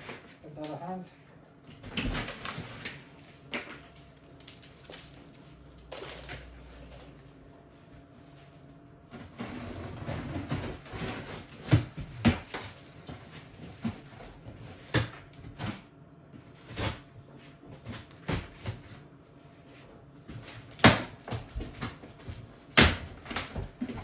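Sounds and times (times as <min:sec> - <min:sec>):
cardboard scraping and rustling: 0:09.2 - 0:14.9.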